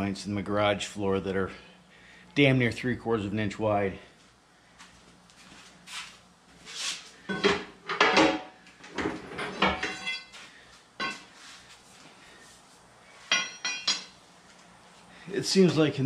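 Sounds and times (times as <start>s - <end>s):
metal clanks knocks and scrapes: 7.3s - 10.4s.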